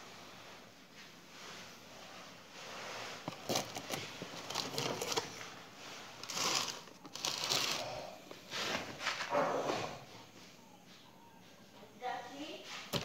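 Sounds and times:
plastic crinkling and rustling: 2.6 - 9.3, 12.7 - 13.0.

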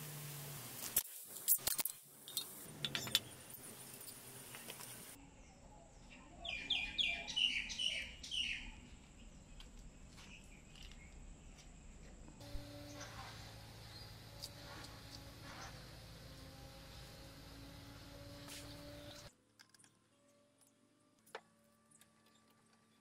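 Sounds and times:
bird chirping: 5.2 - 11.6.

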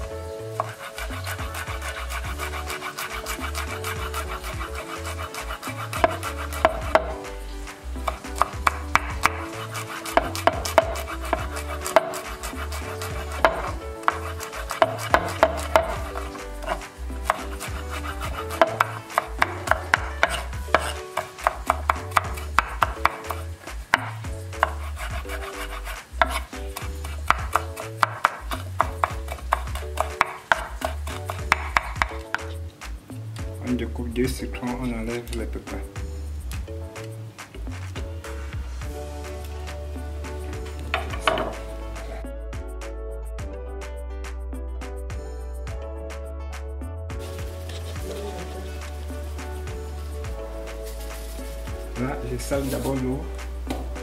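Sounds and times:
knife tapping on wooden board: 0.6 - 7.2, 8.0 - 25.3, 26.2 - 32.6, 40.9 - 41.6.

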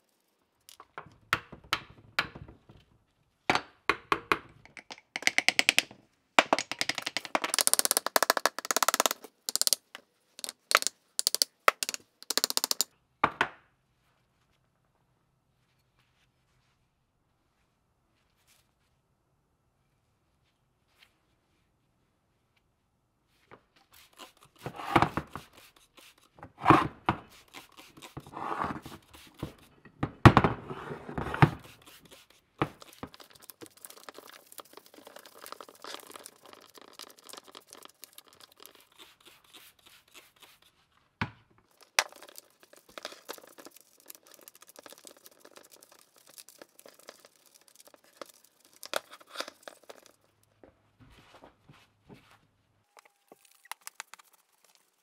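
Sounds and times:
scrubbing metal parts by hand: 6.6 - 12.9, 23.8 - 29.8, 31.5 - 40.8, 41.7 - 50.3.

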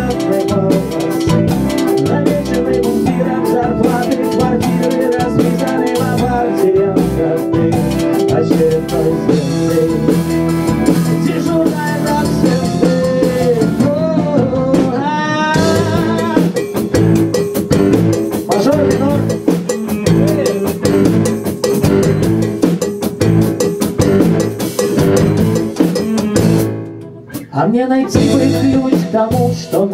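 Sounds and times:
man singing into a microphone: 0.0 - 10.3, 11.0 - 16.6, 18.5 - 21.1, 25.9 - 26.7, 27.4 - 29.9
sustained instrumental chords: 0.0 - 14.8, 15.6 - 29.6
drum kit beat: 0.0 - 29.9.

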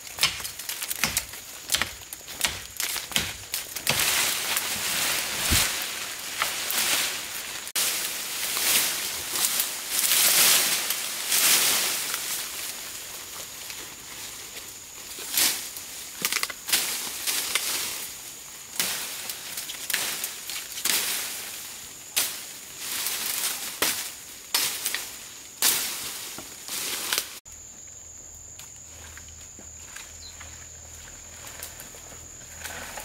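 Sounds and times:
sharp crunching strikes: 0.0 - 8.1.

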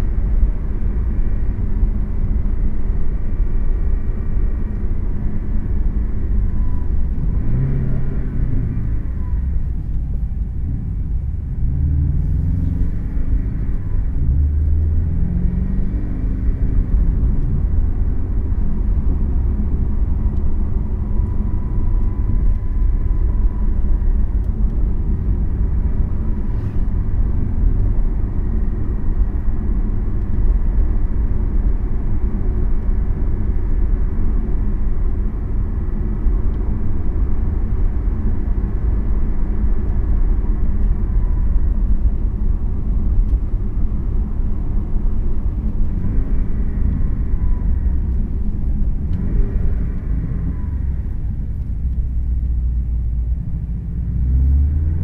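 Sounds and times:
road rumble: 0.0 - 55.0
sports car engine accelerating: 6.2 - 55.0.

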